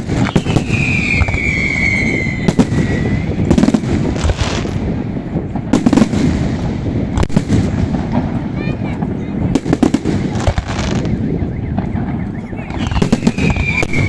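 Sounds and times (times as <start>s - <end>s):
firework whistle: 0.0s - 4.8s, 9.8s - 14.0s.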